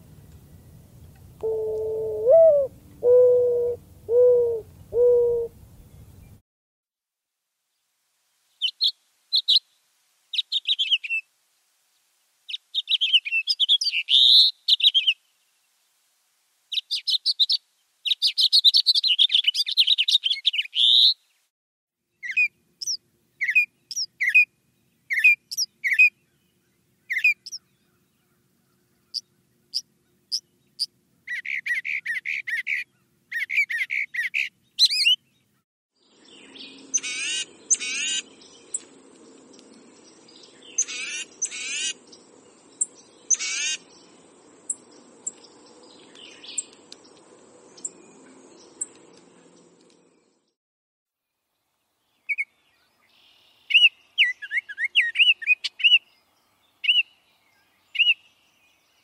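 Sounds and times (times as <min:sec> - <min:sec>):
low steady hum: 0:00.0 - 0:06.4.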